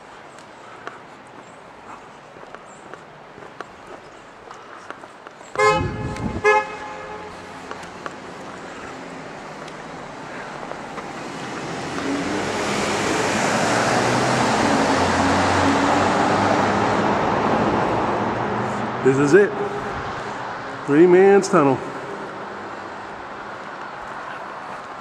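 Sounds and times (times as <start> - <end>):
car approaching: 0.1 - 25.0
car horn toots: 5.6 - 7.6.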